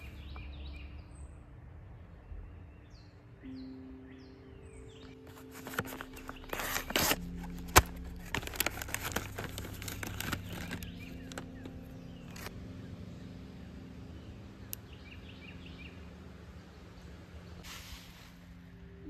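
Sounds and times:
faint low hum: 0.0 - 19.0
pouch crinkling and rustling: 5.2 - 12.5.

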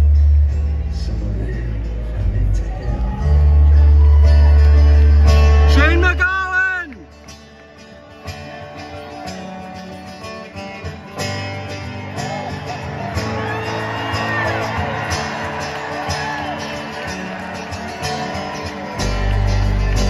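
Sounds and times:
bass guitar: 0.0 - 7.2, 18.4 - 20.0
acoustic guitar strumming: 0.0 - 20.0.

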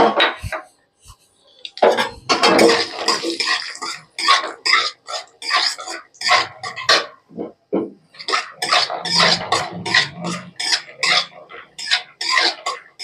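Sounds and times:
metal spatula scraping in pan: 1.8 - 7.2, 8.1 - 13.0
peanuts frying in oil: 2.5 - 7.1, 8.1 - 13.0.

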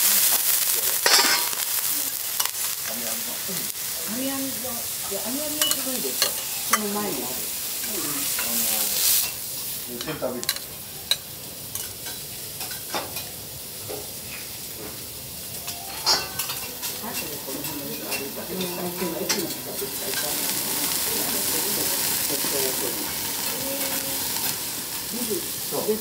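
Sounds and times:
food sizzling on a griddle: 0.0 - 26.0
metal spatula scraping griddle: 1.0 - 1.6
spoon clinking metal bowl: 1.0 - 1.6, 5.6 - 7.0, 15.6 - 20.4.

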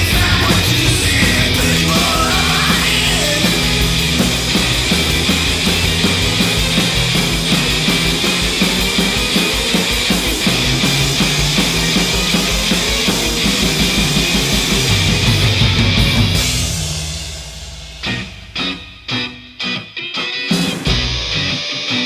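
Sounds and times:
repeating bass riff: 0.0 - 17.0
steady drum beat: 0.0 - 21.4
post-punk rock band instrumental: 0.0 - 22.0.

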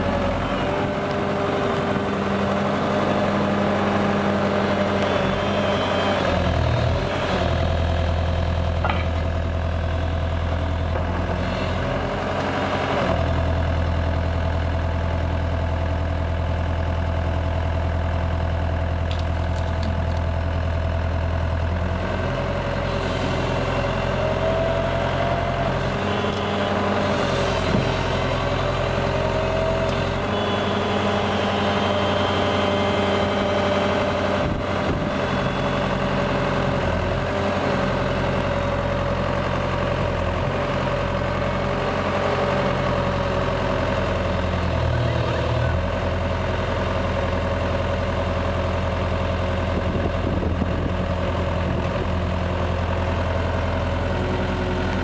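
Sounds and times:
hydraulic whine: 0.0 - 7.0, 22.9 - 37.2
excavator diesel engine running: 0.0 - 55.0.

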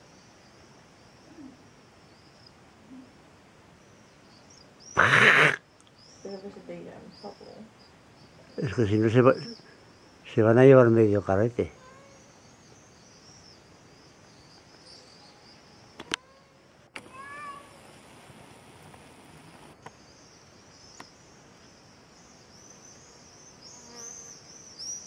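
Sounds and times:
insects chirping: 0.0 - 25.0
short call: 5.0 - 5.6.

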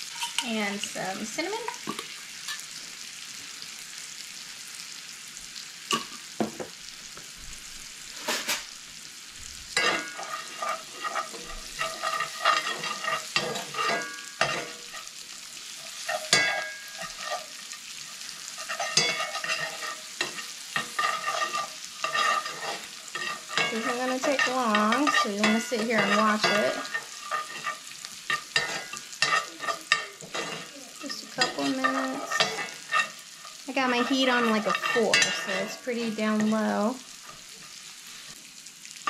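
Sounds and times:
metal spoon scraping iron pan: 0.0 - 0.6, 8.2 - 8.8, 9.8 - 37.8
nuts sizzling in a skillet: 0.0 - 39.0.

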